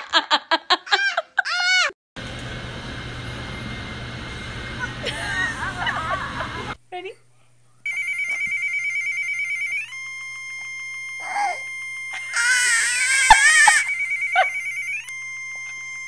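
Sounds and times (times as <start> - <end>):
toddler crying: 0.9 - 1.9, 12.2 - 13.9
electronic ringtone tone: 7.9 - 16.0.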